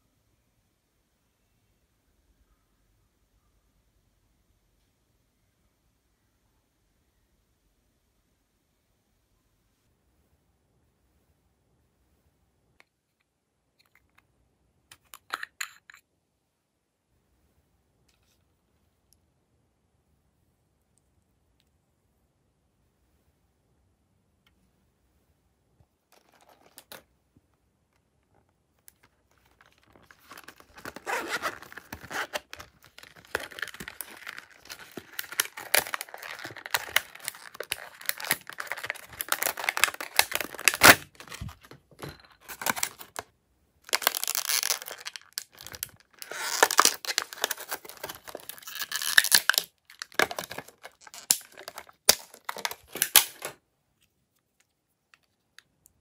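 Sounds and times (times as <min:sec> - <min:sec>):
plastic packaging crinkling: 0:28.9 - 0:43.2, 0:43.9 - 0:53.6
plastic pieces clicking: 0:43.9 - 0:53.6.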